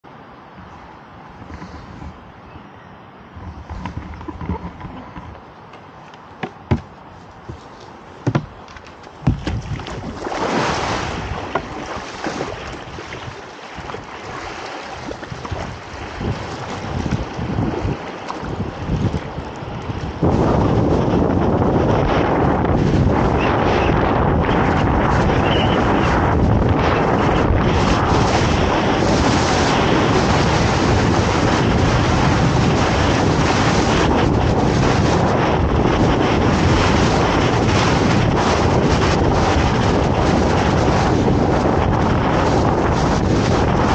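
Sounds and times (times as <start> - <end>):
water washing along hull: 0.1 - 2.3, 3.3 - 43.9
paddle blades dipping: 0.5 - 2.4, 3.3 - 35.2
kayak hull knocks: 3.4 - 14.1, 15.0 - 19.3
kayak splash into water: 9.2 - 19.4
river rapids rushing: 10.0 - 15.2.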